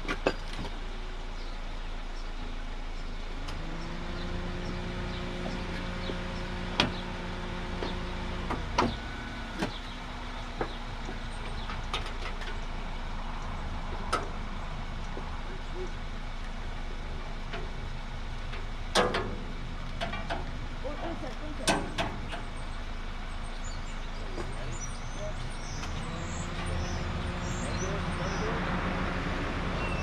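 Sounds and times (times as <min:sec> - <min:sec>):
engine-like humming drone: 0:00.0 - 0:30.0
metal clicks and clunks: 0:18.5 - 0:20.5, 0:21.6 - 0:22.5.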